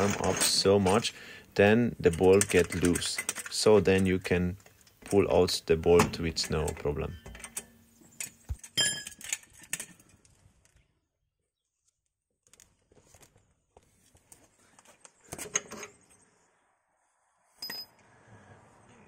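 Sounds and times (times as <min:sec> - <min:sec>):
metal clinks and scrapes: 0:00.0 - 0:01.1, 0:06.4 - 0:10.2.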